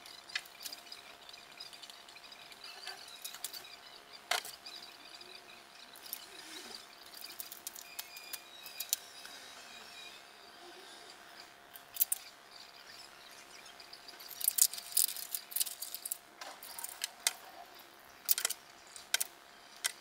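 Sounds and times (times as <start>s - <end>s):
plastic crackling and squeaks: 6.0s - 9.2s, 14.2s - 17.6s
small plastic clicks: 7.1s - 9.0s, 11.7s - 12.3s, 14.3s - 17.4s, 18.2s - 20.0s.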